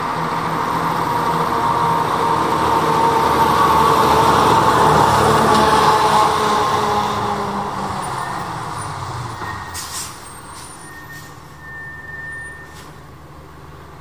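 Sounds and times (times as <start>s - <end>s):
fire engine driving away: 0.0s - 14.0s
brief hisses: 9.8s - 11.4s.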